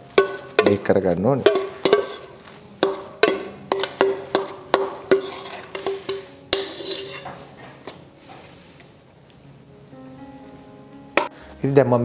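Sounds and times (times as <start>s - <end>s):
metal spoon clanking on steel bowl: 0.0s - 8.0s
scraping in metal baking tin: 1.5s - 3.5s, 5.1s - 7.8s.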